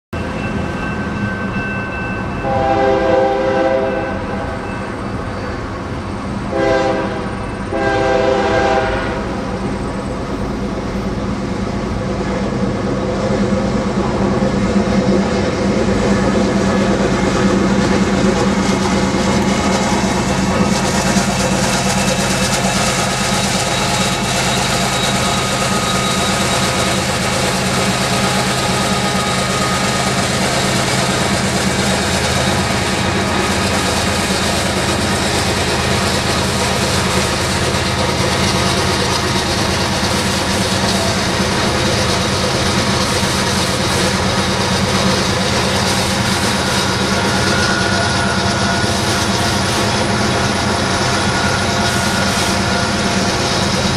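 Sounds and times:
wheels on rail: 0.2 - 53.9
locomotive air horn blasts: 2.4 - 4.6, 6.5 - 9.4
diesel engine drone: 7.4 - 53.9.

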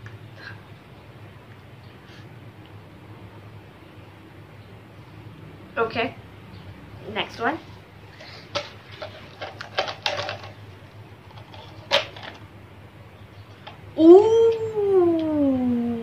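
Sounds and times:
girl's drawn-out oooh: 14.0 - 16.0.

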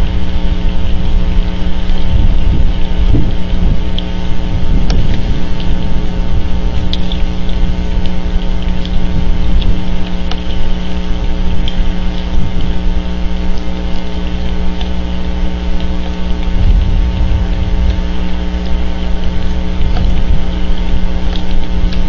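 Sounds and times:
steady electrical hum: 0.0 - 22.0
wind rumbling on microphone: 0.0 - 22.0
faint ticks: 6.6 - 22.0.

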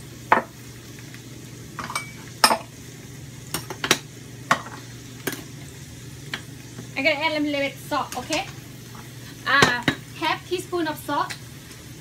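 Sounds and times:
faint frying sizzle: 0.0 - 12.0
spoon clinking against dishes: 1.8 - 2.7.

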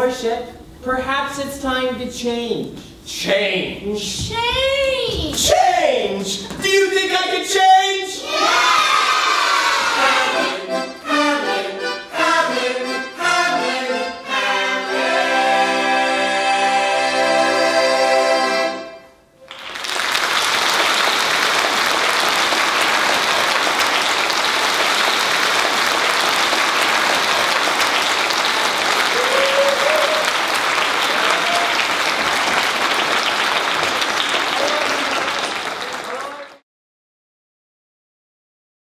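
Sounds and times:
audience applauding: 19.4 - 36.6.

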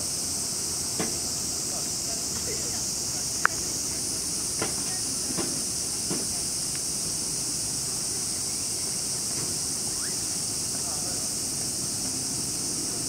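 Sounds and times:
cicadas buzzing: 0.0 - 13.0
faint ticks: 3.4 - 3.6.

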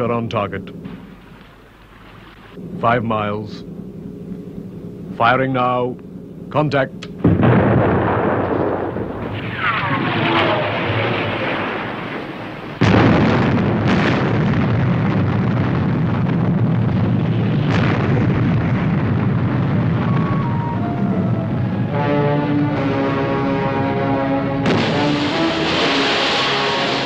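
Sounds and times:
huge explosion roar: 7.2 - 27.0
missile launch rush: 7.2 - 27.0
falling whistle: 20.0 - 22.5.

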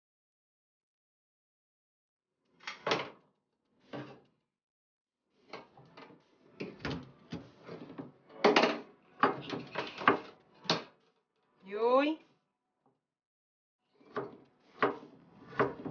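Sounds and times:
drawers and cupboard doors knocking: 8.4 - 10.9, 14.1 - 15.9.

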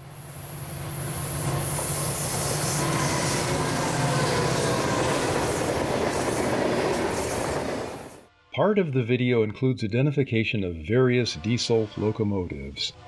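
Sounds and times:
locomotive engine drone: 0.0 - 8.3
wheels rumbling on rails: 0.4 - 8.3.

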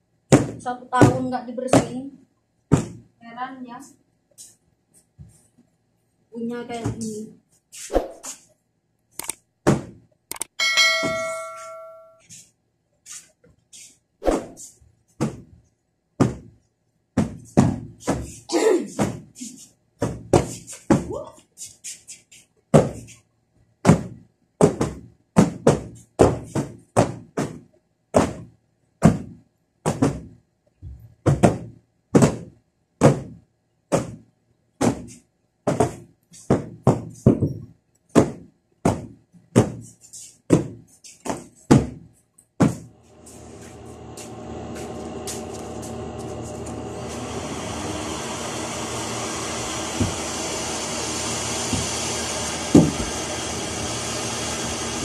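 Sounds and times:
floor cushions thudding: 0.3 - 2.0, 2.7 - 3.1, 9.6 - 10.0, 15.2 - 15.5, 16.2 - 16.5, 17.2 - 18.3, 20.0 - 21.2, 23.8 - 30.4, 31.2 - 34.2, 34.8 - 39.9, 40.5 - 43.7, 52.7 - 53.2.

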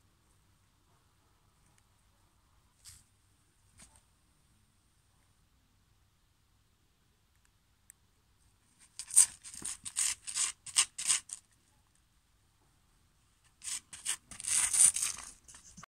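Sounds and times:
dog paw scraping dirt: 9.0 - 11.4, 13.6 - 15.9.

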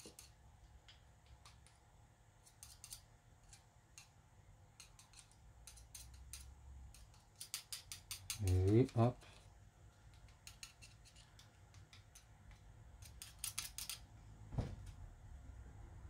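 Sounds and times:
small metal parts clicking: 0.0 - 0.4, 2.4 - 4.2, 4.8 - 14.1.

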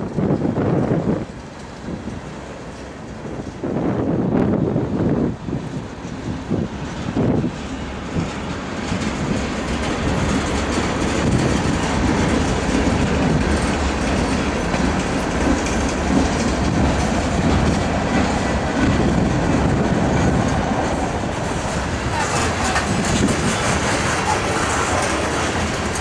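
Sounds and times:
train wheels rumbling on rails: 0.0 - 26.0
wheels clacking over rail joints: 0.0 - 26.0.

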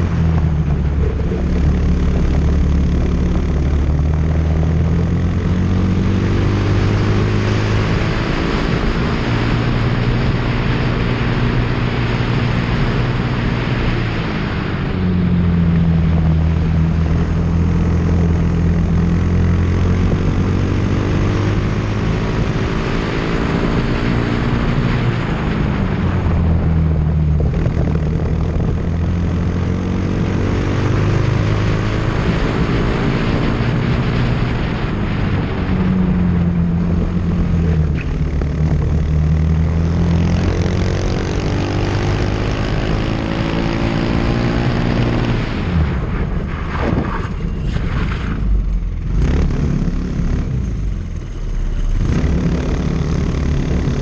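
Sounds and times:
wind and tyre noise: 0.0 - 54.0
racing car engine revving: 49.0 - 54.0.

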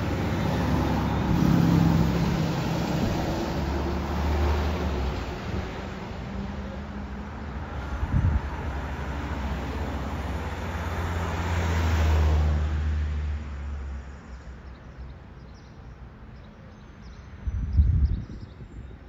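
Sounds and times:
bus engine: 0.0 - 15.1
road noise: 0.0 - 19.0.

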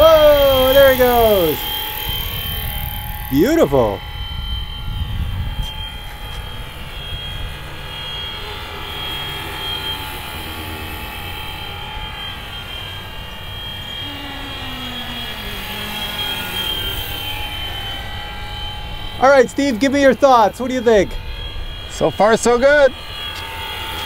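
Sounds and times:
rc helicopter rotor whine: 0.0 - 24.0.

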